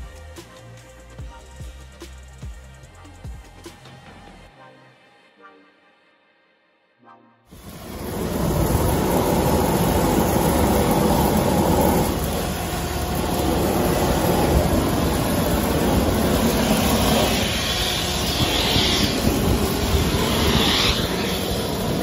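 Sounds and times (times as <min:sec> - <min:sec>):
construction machinery rumble: 0:07.6 - 0:22.0
brief hissing surges: 0:16.4 - 0:22.0.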